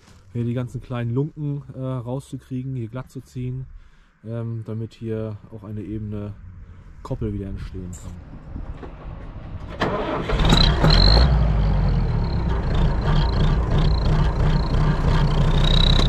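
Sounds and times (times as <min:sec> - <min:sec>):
tractor diesel engine running: 0:08.8 - 0:16.0.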